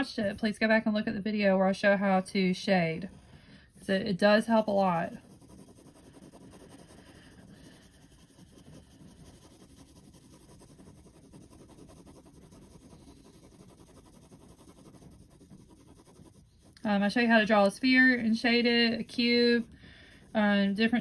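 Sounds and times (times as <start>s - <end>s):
pencil scratching on paper: 1.8s - 21.0s.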